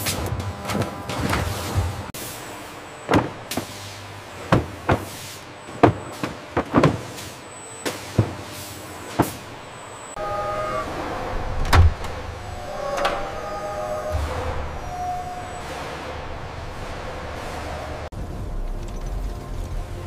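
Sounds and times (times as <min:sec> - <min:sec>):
machine hum with held tones: 0:08.8 - 0:20.0
machinery clacks and swishes: 0:14.0 - 0:19.8.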